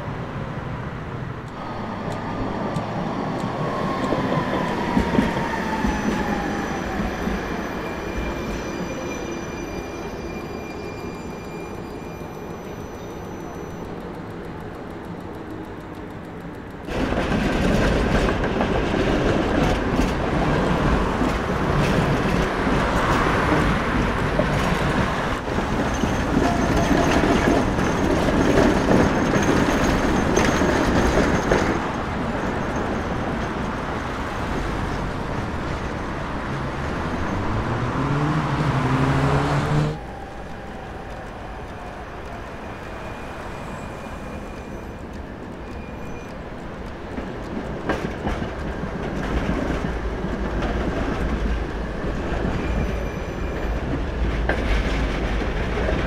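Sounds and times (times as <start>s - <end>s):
tram wheels rumbling on rails: 0.0s - 56.0s
quiet street hum: 31.6s - 56.0s.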